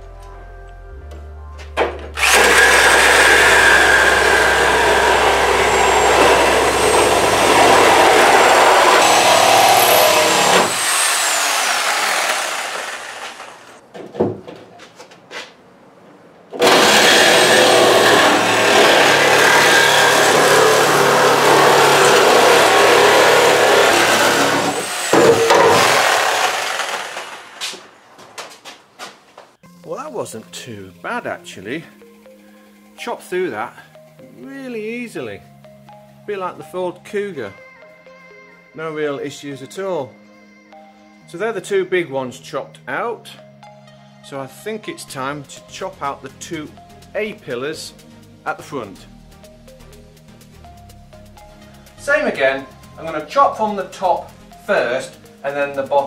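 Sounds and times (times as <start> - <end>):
reciprocating saw cutting steel: 2.2 - 13.8, 16.6 - 27.9.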